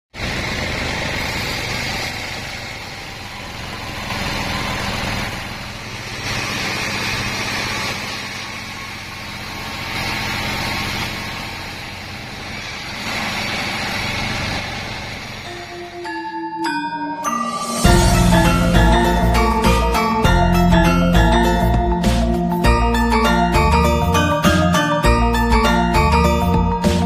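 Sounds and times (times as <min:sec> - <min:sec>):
band saw cutting timber: 0:00.2 - 0:16.0.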